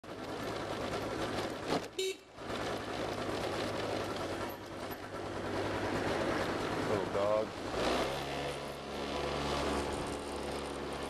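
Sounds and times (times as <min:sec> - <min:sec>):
scooter engine running: 0:00.0 - 0:11.0
traffic: 0:00.0 - 0:11.0
wind: 0:00.0 - 0:11.0
vehicle horn toot: 0:02.0 - 0:02.3.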